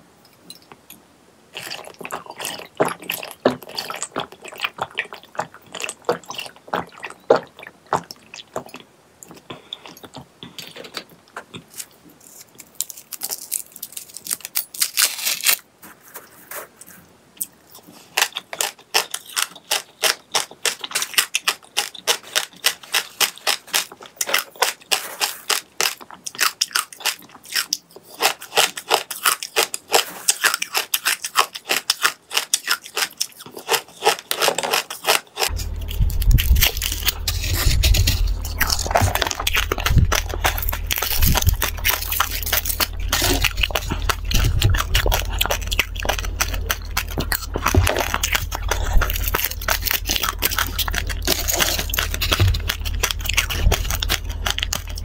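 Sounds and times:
person eating crunching: 1.5 - 55.0
wet mouth sounds: 1.6 - 10.6, 35.0 - 55.0.

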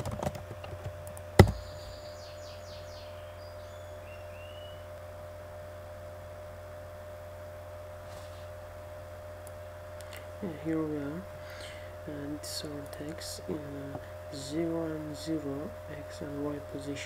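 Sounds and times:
computer keyboard keystroke: 0.0 - 1.6
low electrical hum: 0.0 - 17.0.

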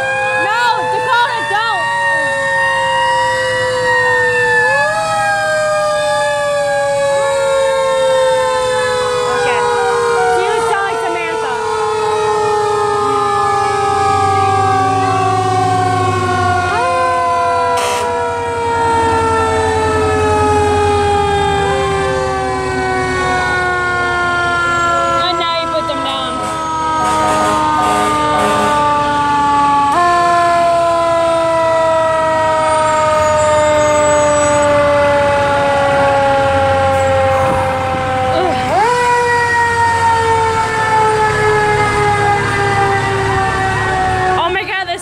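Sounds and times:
fire truck sirens wailing: 0.0 - 45.0
truck engines rumbling: 0.0 - 45.0.

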